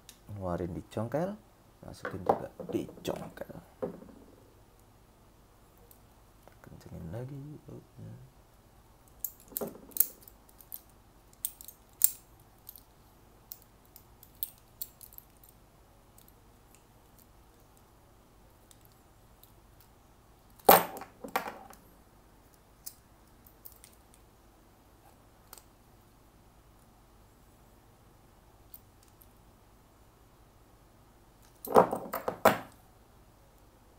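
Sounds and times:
multi-tool clicking and clinking: 9.0 - 12.9, 13.5 - 17.8, 22.8 - 24.2.

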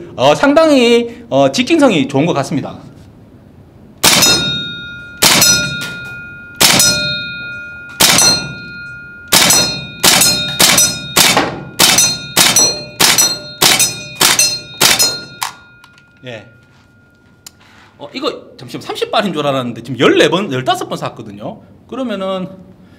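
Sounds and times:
airsoft shotgun firing: 4.0 - 4.6, 5.2 - 5.8, 6.6 - 7.1, 8.0 - 8.4, 9.3 - 15.4
pellets clanging off steel plate: 4.2 - 16.3.

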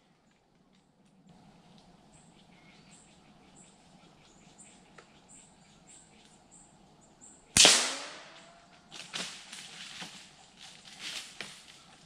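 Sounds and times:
loud gunshot: 7.6 - 8.5
faint rustles and knocks: 8.7 - 12.0.

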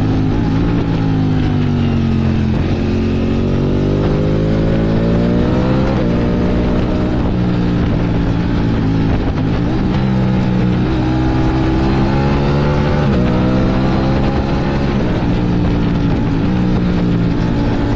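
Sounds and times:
motorcycle engine accelerating: 0.0 - 17.9
wind rushing: 0.0 - 17.9.

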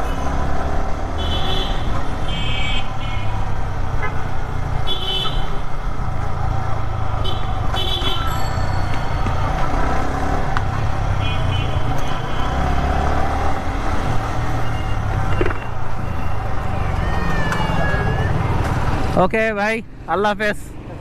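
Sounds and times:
wind: 0.0 - 21.0
vehicle horn toots: 7.2 - 8.3.

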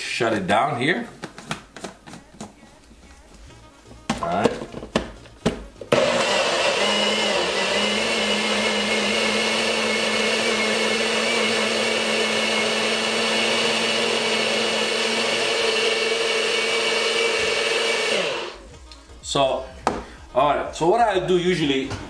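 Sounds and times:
electric blender running: 5.9 - 18.6.

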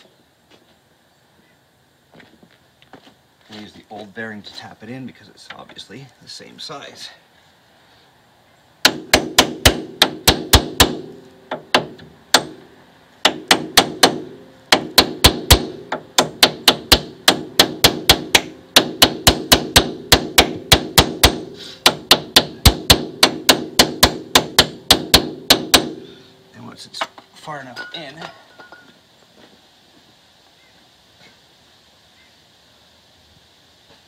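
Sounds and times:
hammer striking metal: 13.2 - 26.0.

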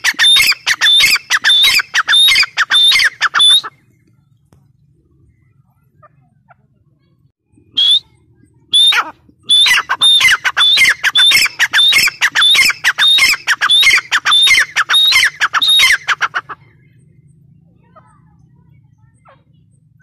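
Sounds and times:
francolin harsh calls: 0.0 - 3.7, 8.7 - 16.7.

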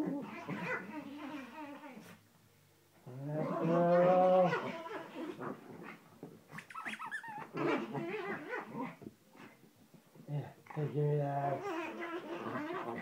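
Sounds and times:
dogs growling: 0.0 - 2.2, 3.0 - 9.6, 10.3 - 13.0
dogs whining and yipping: 6.5 - 9.0, 11.6 - 13.0.

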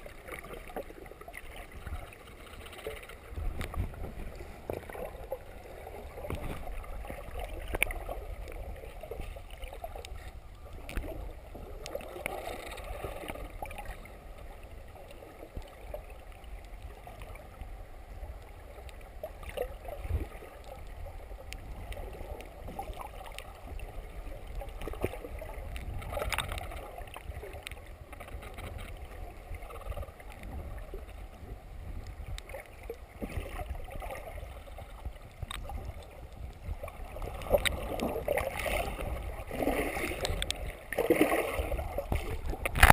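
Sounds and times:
underwater rumble and sloshing: 0.0 - 42.9
bubbling: 32.0 - 42.9.

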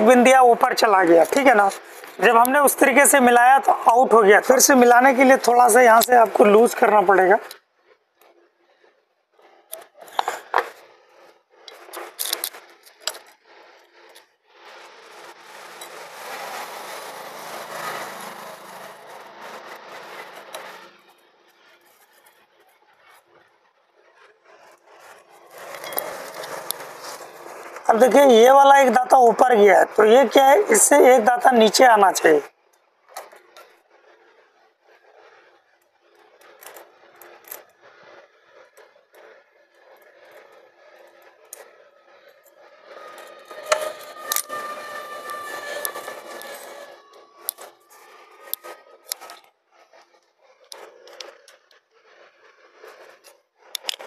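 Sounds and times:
metal tools clinking: 25.7 - 26.6.

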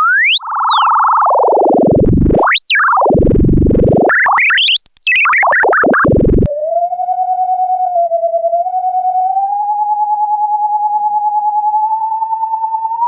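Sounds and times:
wobbling mid-pitched tone: 0.0 - 6.5
oscillator sine tone sweeping: 0.0 - 13.0.

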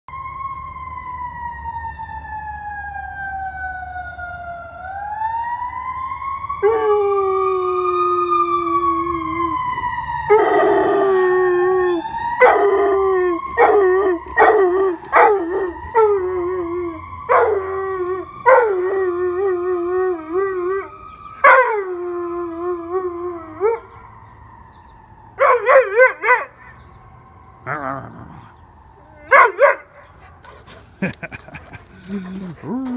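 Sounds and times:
fire truck siren wailing: 0.1 - 32.9
dog howling: 32.1 - 32.9.

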